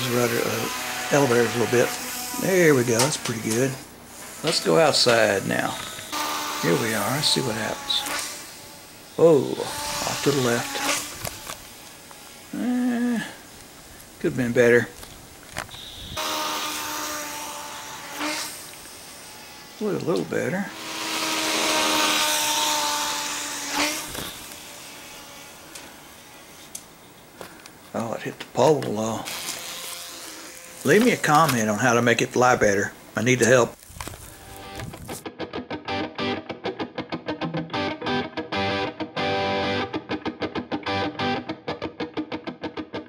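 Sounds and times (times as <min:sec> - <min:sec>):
tiny electric motor and propeller buzzing: 0:00.0 - 0:12.9, 0:15.0 - 0:26.8, 0:29.2 - 0:31.9, 0:32.5 - 0:35.2
guitar background music: 0:34.4 - 0:43.0.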